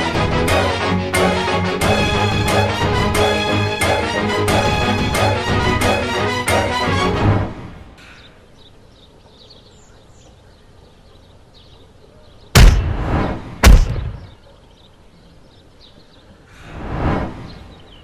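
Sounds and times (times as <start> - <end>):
heavy punch thuds: 12.6 - 14.3.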